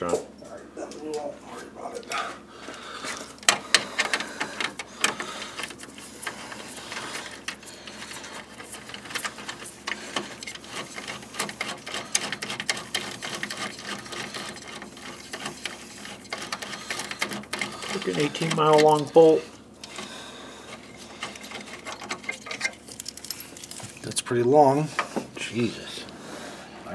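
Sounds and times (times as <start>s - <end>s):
hand ratchet clicking: 3.4s - 19.2s.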